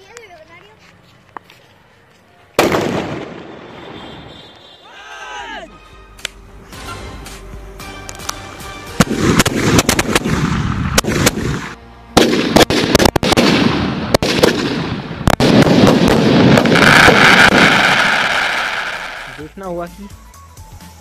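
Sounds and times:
fireworks bangs and crackling: 2.6 - 4.3, 8.9 - 19.5.

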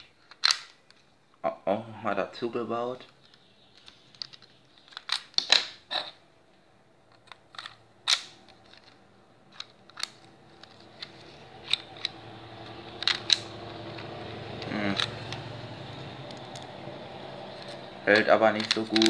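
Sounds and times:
plastic bricks clicking and knocking: 0.0 - 1.1, 3.0 - 6.2, 7.1 - 15.5, 17.5 - 19.0.

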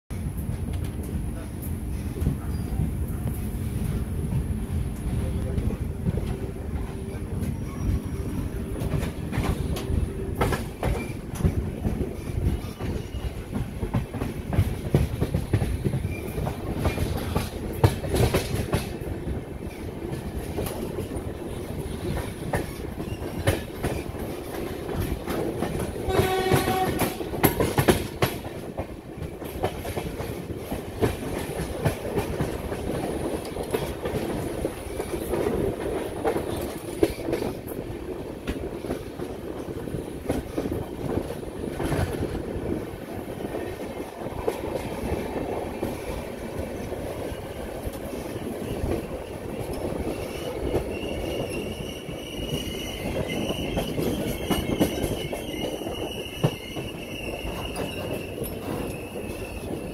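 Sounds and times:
train wheels clattering over rail joints: 4.2 - 59.9
locomotive horn: 26.0 - 27.4.

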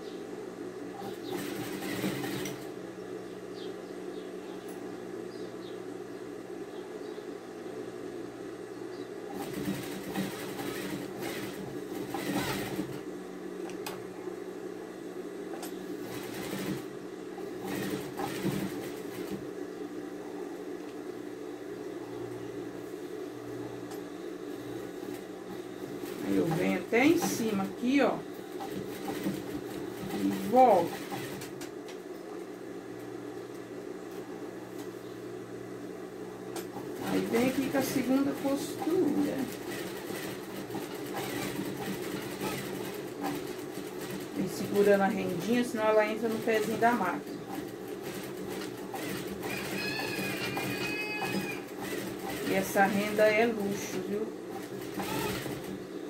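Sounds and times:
steady hum: 0.0 - 49.8
sewing machine stitching: 1.0 - 2.7, 9.3 - 13.0, 16.0 - 16.9, 17.5 - 19.4, 26.0 - 27.7, 28.5 - 31.7, 36.8 - 45.6, 46.2 - 53.8, 54.5 - 55.8.

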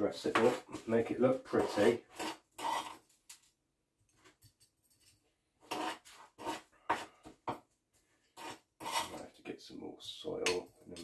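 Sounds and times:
rasping scrapes of soil: 1.5 - 3.0, 5.7 - 7.2, 8.3 - 9.2.

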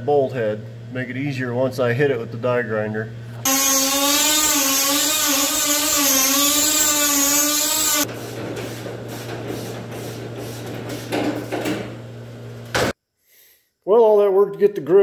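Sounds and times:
die grinder high whine: 3.4 - 8.1.

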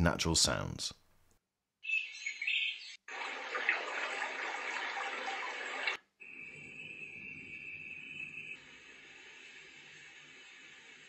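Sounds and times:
recorded birdsong chirps: 1.8 - 3.0.

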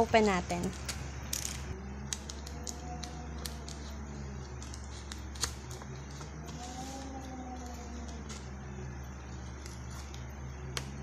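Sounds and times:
paper crackling: 2.1 - 8.6.

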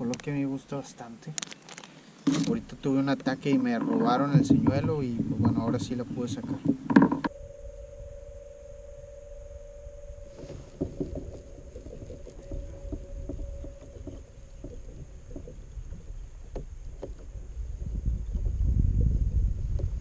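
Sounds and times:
faint steady hum: 0.0 - 20.0
water splashing against kayak hull: 1.8 - 7.3, 10.3 - 20.0
wind rumble on microphone: 2.4 - 20.0.

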